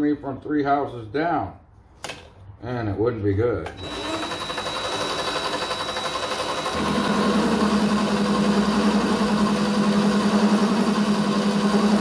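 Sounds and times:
lathe cutter cutting workpiece: 3.8s - 12.0s
lathe motor hum: 3.8s - 12.0s.

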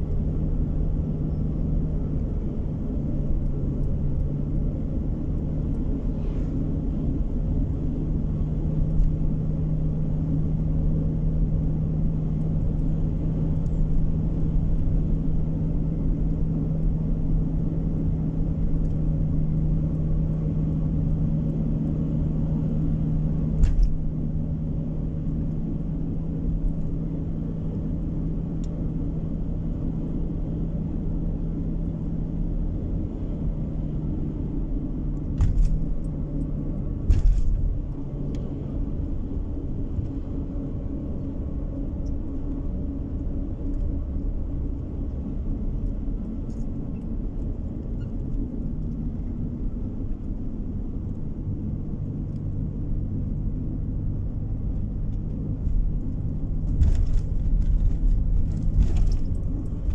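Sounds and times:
car interior engine and road drone: 0.0s - 59.9s.

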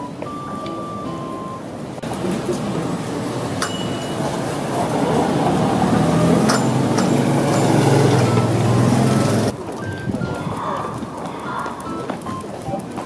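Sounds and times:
street noise: 0.0s - 13.0s
vehicle engine running: 2.0s - 9.5s
light clinks: 3.6s - 4.4s, 6.4s - 8.1s.

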